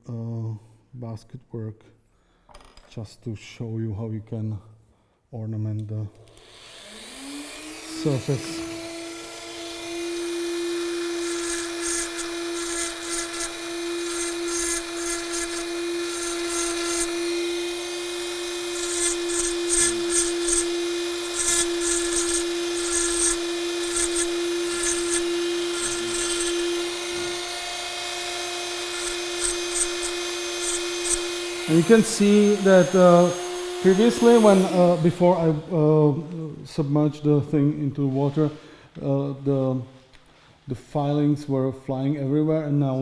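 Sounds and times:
rotary tool running: 0:06.4 - 0:35.7
burr scratching antler: 0:11.2 - 0:17.2, 0:18.7 - 0:27.0, 0:28.8 - 0:33.3.

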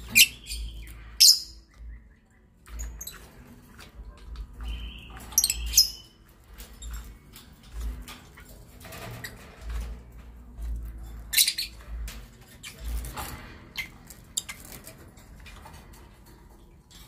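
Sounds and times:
lovebirds chirping: 0:00.0 - 0:08.7, 0:10.8 - 0:13.2.

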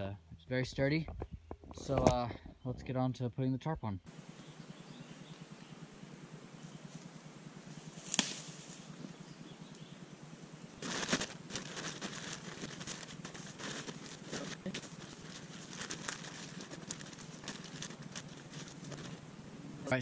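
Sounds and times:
plastic tarp crinkling: 0:10.8 - 0:19.2.

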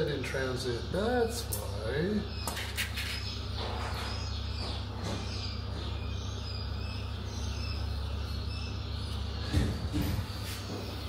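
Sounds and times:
low background hum: 0:00.0 - 0:11.0
faint high chirping: 0:00.4 - 0:11.0.

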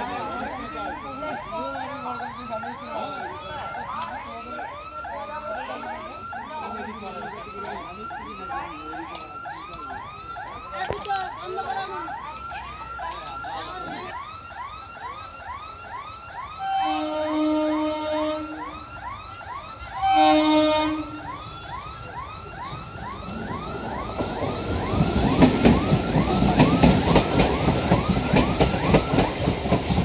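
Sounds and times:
train running noise: 0:00.0 - 0:30.0
train horn blasts: 0:16.6 - 0:18.7, 0:20.0 - 0:21.3.

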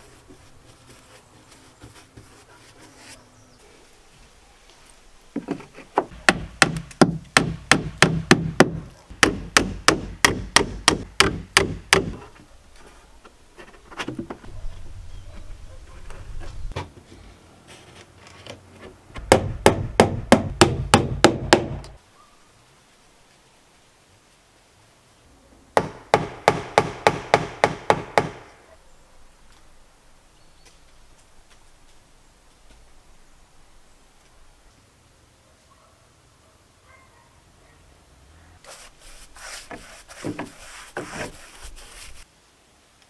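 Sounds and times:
hammer driving nails into wood: 0:05.4 - 0:12.2, 0:19.2 - 0:22.0, 0:25.8 - 0:28.5.

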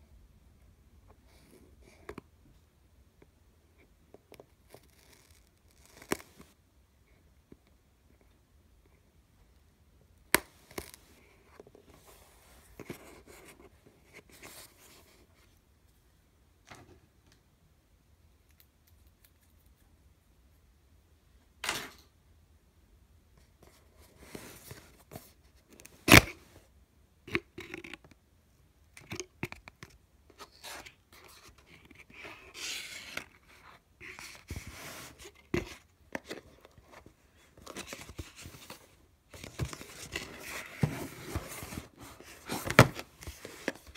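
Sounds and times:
cardboard box handled: 0:37.6 - 0:43.9.

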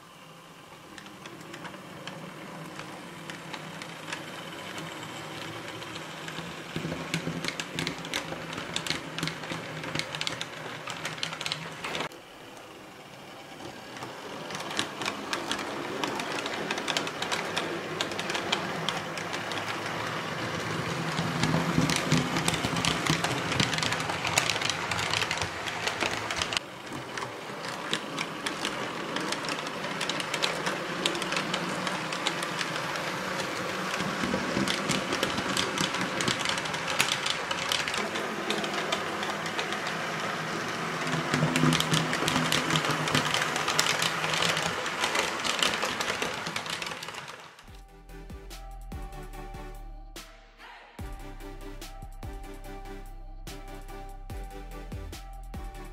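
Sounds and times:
model train running on track: 0:00.0 - 0:47.7.

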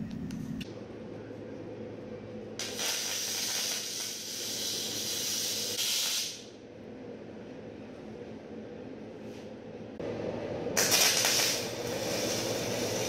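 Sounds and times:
welding arc sizzling: 0:02.6 - 0:06.6, 0:10.8 - 0:13.0.

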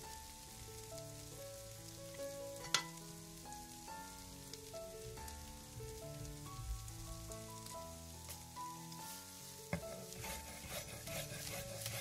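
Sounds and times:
soft background music: 0:00.0 - 0:12.0
moist rustling of cabbage: 0:08.4 - 0:12.0.

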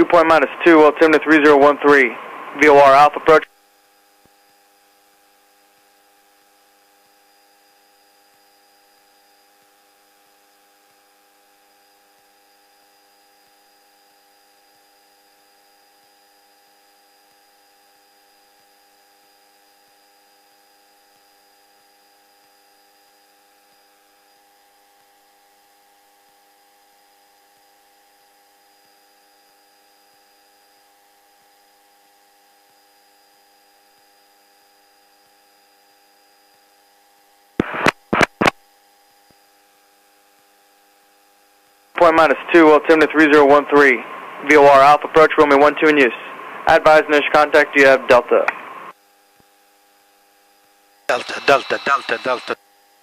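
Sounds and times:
static crackle bursts: 0:37.6 - 0:38.7, 0:51.1 - 0:52.6.

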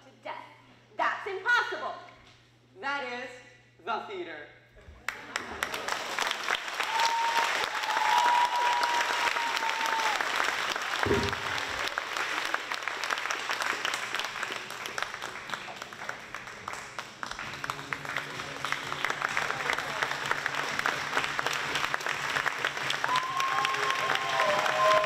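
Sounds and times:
large audience applauding: 0:05.1 - 0:25.0.

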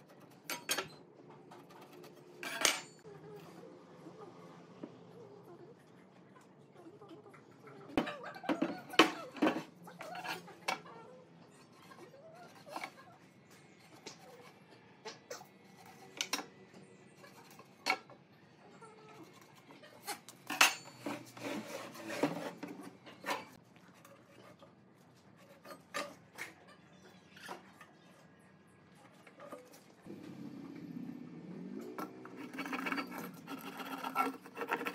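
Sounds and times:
metal tools clinking: 0:02.4 - 0:03.0, 0:20.4 - 0:21.3, 0:32.0 - 0:34.3.

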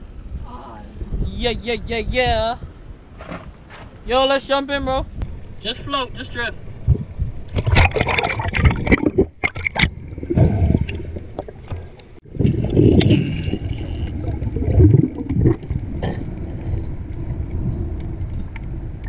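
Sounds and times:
muffled underwater rushing and gurgling: 0:06.6 - 0:19.0
water splashing: 0:06.6 - 0:19.0.

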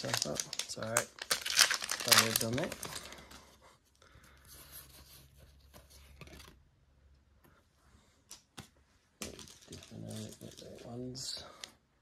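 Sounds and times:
foil packs rustling: 0:00.0 - 0:03.4.

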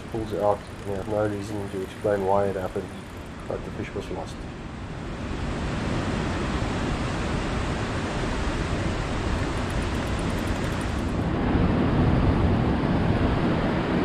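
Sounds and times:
sea surf washing on shore: 0:00.0 - 0:14.0
wind on microphone: 0:05.0 - 0:14.0.

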